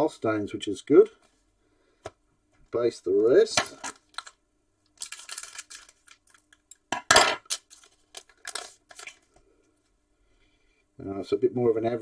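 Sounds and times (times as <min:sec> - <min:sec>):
foil wrapper crinkling and tearing: 0:05.0 - 0:06.8, 0:07.4 - 0:09.2.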